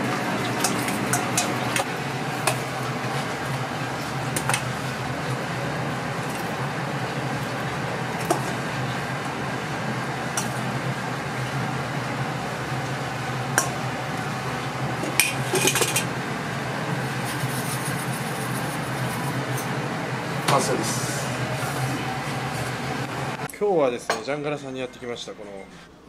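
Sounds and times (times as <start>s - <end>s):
kitchen ventilation hum: 0.0s - 26.0s.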